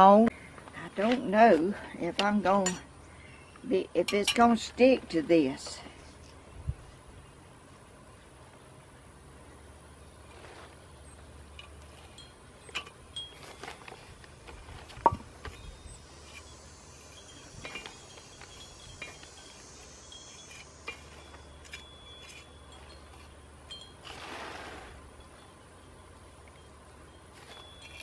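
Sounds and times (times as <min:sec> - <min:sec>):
hand tool clinking on ceramic pot: 0:02.2 - 0:02.8, 0:15.0 - 0:24.2, 0:27.3 - 0:28.0
short scrape: 0:24.0 - 0:25.0.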